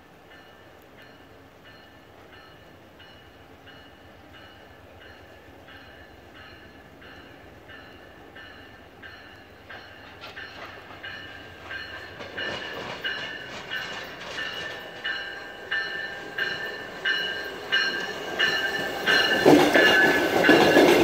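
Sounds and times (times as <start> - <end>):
train rumbling past: 0.0 - 21.0
train warning bell ringing: 0.1 - 21.0.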